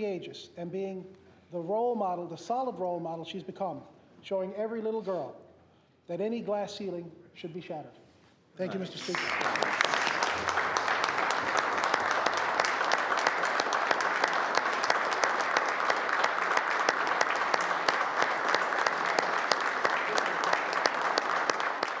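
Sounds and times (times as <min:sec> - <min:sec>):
crowd applauding: 0:08.9 - 0:22.0.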